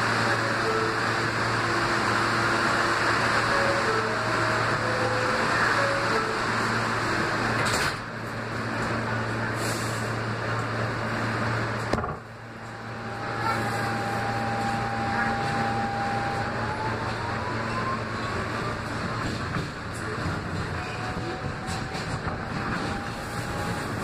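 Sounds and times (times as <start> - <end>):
subway car rumble and hum: 0.0 - 24.0
traction motor whine: 12.4 - 19.0.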